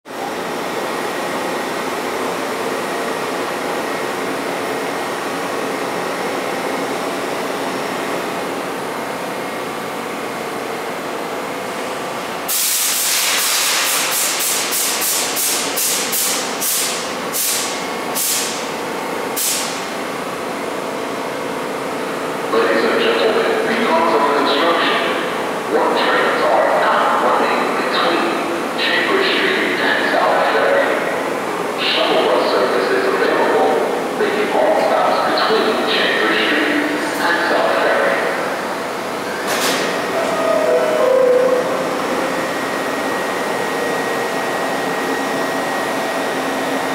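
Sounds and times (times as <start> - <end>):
subway train equipment humming: 0.1 - 46.9
compressed air hissing: 12.5 - 18.6, 19.4 - 19.8.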